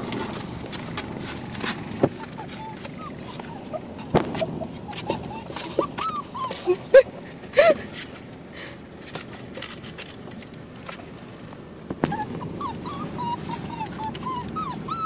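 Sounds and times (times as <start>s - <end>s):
puppies scratching in cardboard box: 0.0s - 6.9s, 9.0s - 11.5s, 12.1s - 15.0s
puppies whimpering and yipping: 1.9s - 7.8s, 12.0s - 15.0s.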